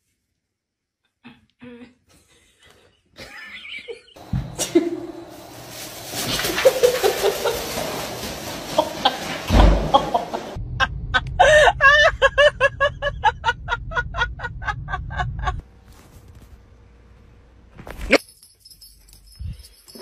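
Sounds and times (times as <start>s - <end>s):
rough handling noise: 5.3s - 10.6s
low engine rumble: 8.7s - 17.8s.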